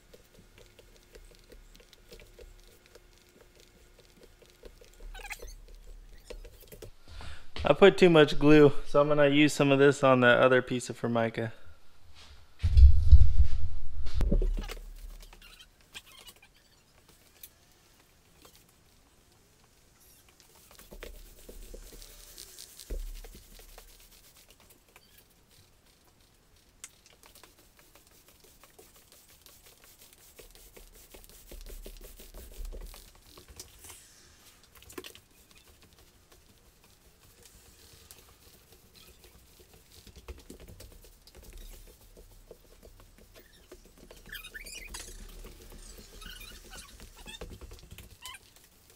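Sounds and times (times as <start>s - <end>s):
soft low thumps: 12.6s - 14.6s
roller spreading sticky adhesive: 19.7s - 48.9s.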